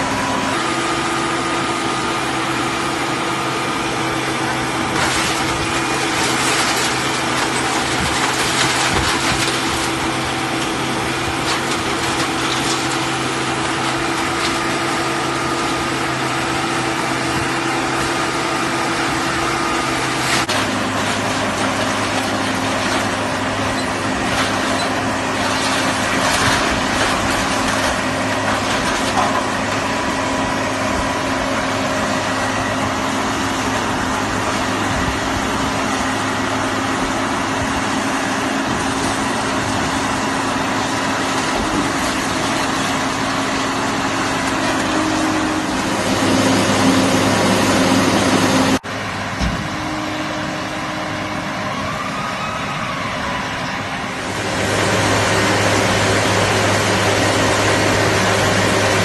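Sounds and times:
baler engine and hydraulics humming: 0.0s - 59.0s.

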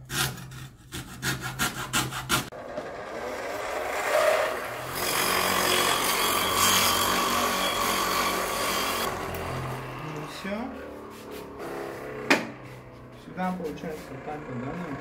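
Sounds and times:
hacksaw cutting: 0.0s - 10.2s.

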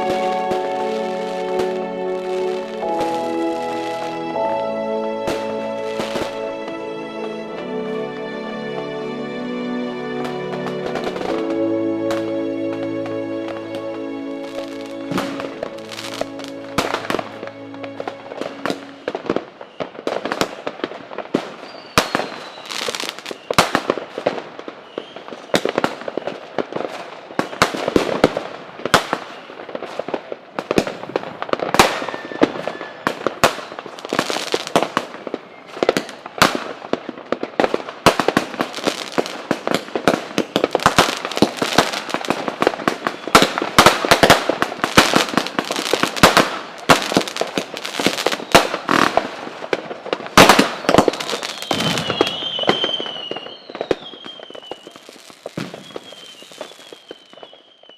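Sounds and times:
firecrackers going off: 0.0s - 9.0s, 10.1s - 57.9s
background music: 0.0s - 20.2s, 38.5s - 49.3s.

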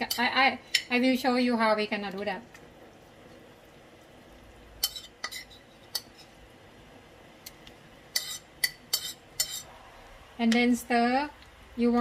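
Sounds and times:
metal utensil clinking against pot: 4.8s - 6.2s, 8.1s - 9.6s.

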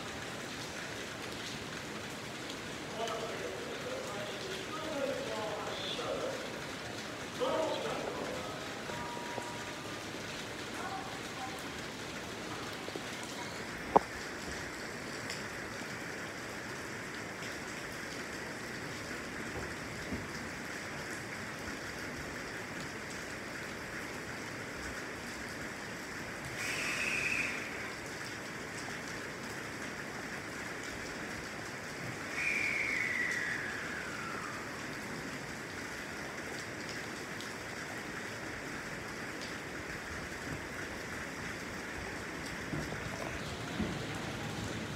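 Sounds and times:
rain falling: 0.0s - 44.9s
high tone falling in pitch: 8.9s - 9.8s
short high tone: 8.9s - 9.8s.

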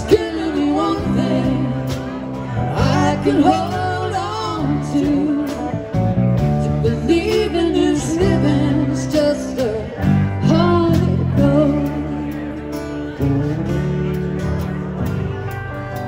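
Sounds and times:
woman singing: 0.0s - 5.8s, 6.6s - 12.6s
acoustic guitar: 0.0s - 16.0s
drums: 0.0s - 16.0s
electric bass: 0.0s - 16.0s
electric guitar: 0.0s - 16.0s.

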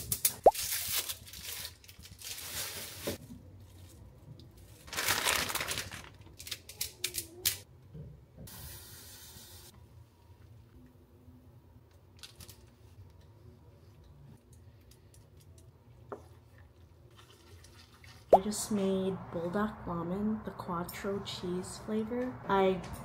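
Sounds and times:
packaging crinkling and tearing: 0.0s - 3.2s, 4.7s - 7.5s.

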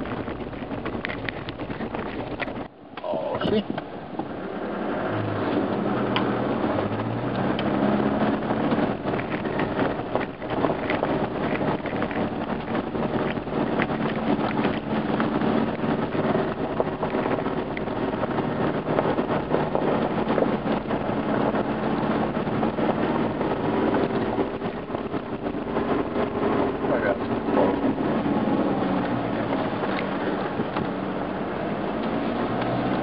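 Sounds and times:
off-road vehicle engine: 0.0s - 33.0s
tyres crunching on gravel: 8.5s - 21.9s.

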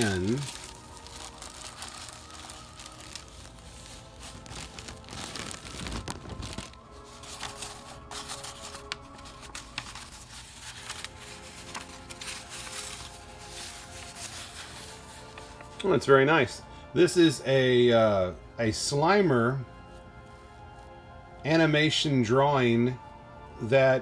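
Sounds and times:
paper rustling: 0.0s - 15.9s
plastic wrapping crinkling: 0.0s - 15.9s
quiet background music: 0.0s - 24.0s.

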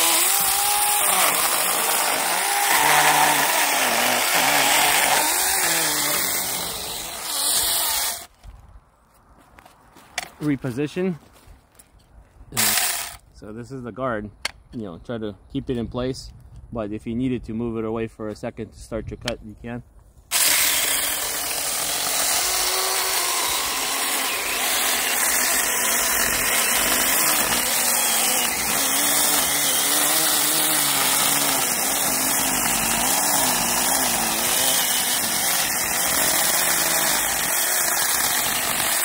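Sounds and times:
mini chainsaw cutting wood: 0.0s - 8.3s, 12.6s - 13.2s, 20.3s - 39.0s.

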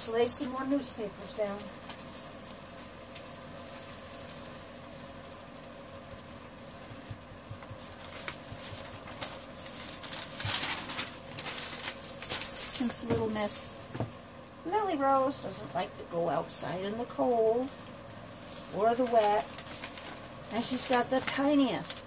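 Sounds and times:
newspaper rustling: 7.5s - 13.1s, 18.4s - 22.0s.

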